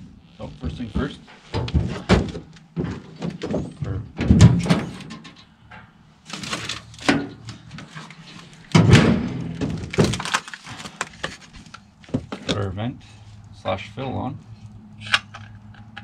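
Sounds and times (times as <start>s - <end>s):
knocks and clunks of tools: 1.0s - 8.1s, 12.1s - 12.6s.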